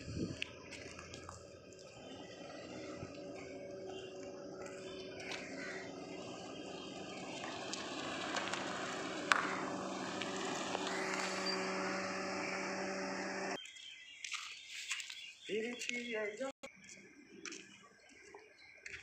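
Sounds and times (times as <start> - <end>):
car approaching at low speed: 0.0 - 13.6.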